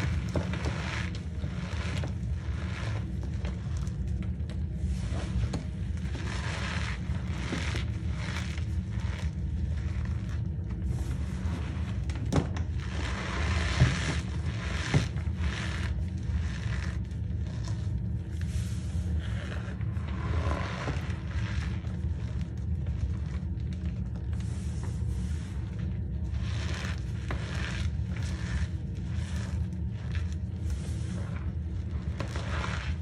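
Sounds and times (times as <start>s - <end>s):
steady low hum: 0.0s - 33.0s
cornstarch crunching and squeaking: 26.0s - 33.0s.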